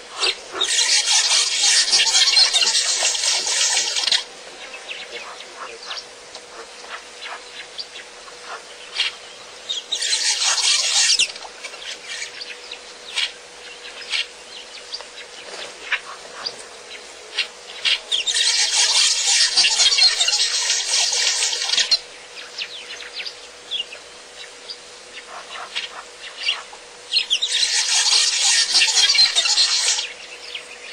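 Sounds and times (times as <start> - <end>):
loud insect buzzing: 27.2 - 30.8.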